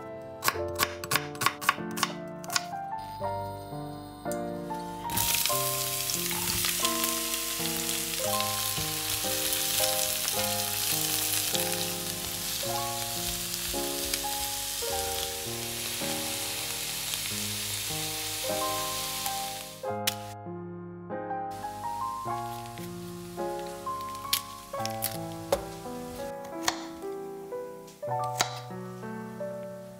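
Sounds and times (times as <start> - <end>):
light background music: 0.0 - 20.5, 21.1 - 29.9
onions sizzling in oil: 5.0 - 20.4, 21.6 - 26.3.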